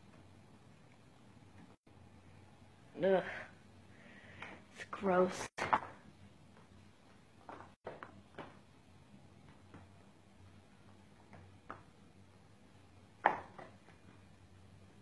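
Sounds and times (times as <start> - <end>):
faint hum: 0.0 - 15.0.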